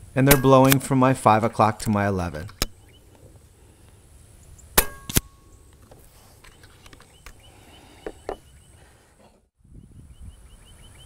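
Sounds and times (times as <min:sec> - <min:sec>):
air rifle shots: 0:00.2 - 0:01.0, 0:04.8 - 0:05.4.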